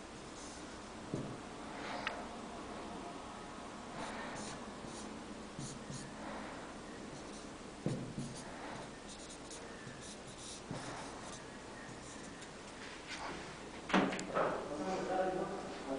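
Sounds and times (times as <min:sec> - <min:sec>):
marker squeaking on whiteboard: 0:04.4 - 0:06.2, 0:07.1 - 0:12.8
soft knock: 0:07.8 - 0:08.2.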